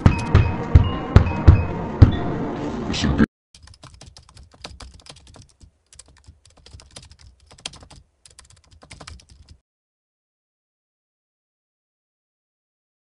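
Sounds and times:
keyboard typing clicks: 3.6 - 9.6.

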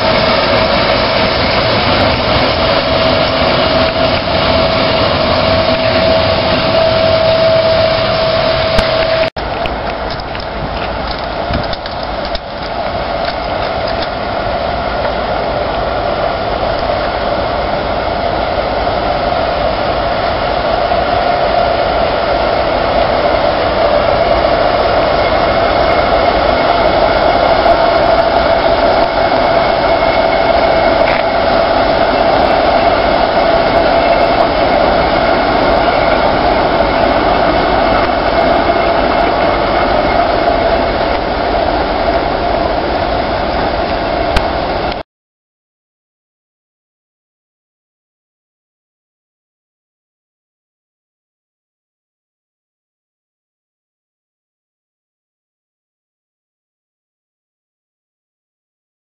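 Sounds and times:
diesel locomotive engine running: 0.0 - 45.0
high whine: 0.0 - 45.0.

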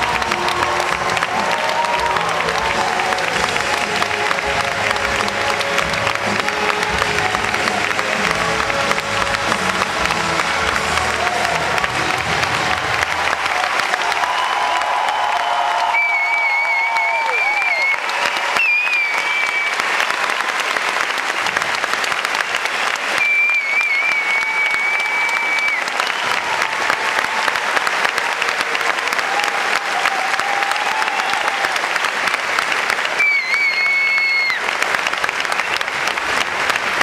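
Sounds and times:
audience applauding: 0.0 - 37.0
high whistle from crowd: 15.4 - 20.0, 22.7 - 26.6, 33.0 - 34.7.

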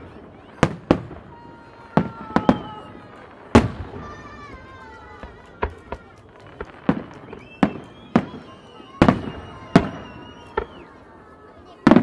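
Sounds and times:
fireworks bursting bangs: 0.0 - 12.0
faint falling whistles: 6.9 - 11.1.

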